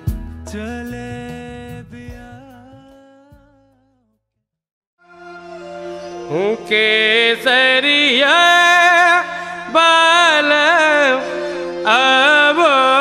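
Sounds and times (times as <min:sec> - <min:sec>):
person singing ornamented notes: 0:00.5 - 0:01.8, 0:05.0 - 0:13.0.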